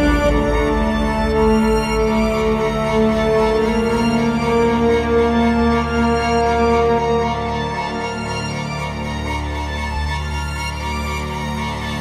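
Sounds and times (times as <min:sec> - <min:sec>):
deep pulsing bass: 0:00.0 - 0:07.1
sustained synth chords: 0:00.0 - 0:10.1.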